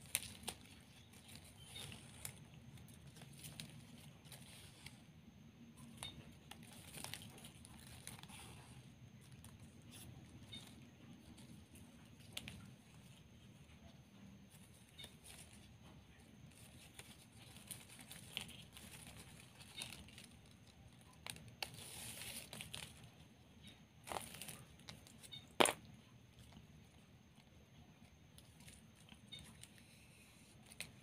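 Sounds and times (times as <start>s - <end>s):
ribbon rustling and crinkling: 0.0s - 5.2s, 5.8s - 13.7s, 14.5s - 23.2s, 24.0s - 25.8s.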